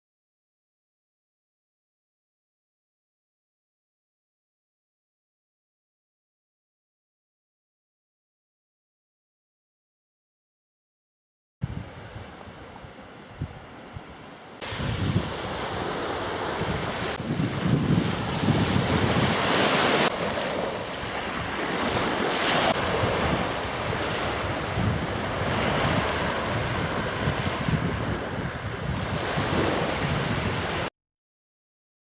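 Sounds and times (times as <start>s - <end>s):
wind buffeting microphone: 11.6s - 30.9s
waves washing up pebble beach: 14.6s - 30.9s.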